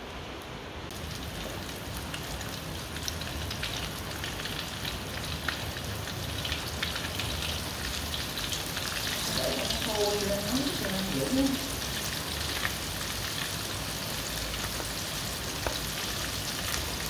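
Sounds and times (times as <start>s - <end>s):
chicken frying in hot oil: 0.9s - 17.0s.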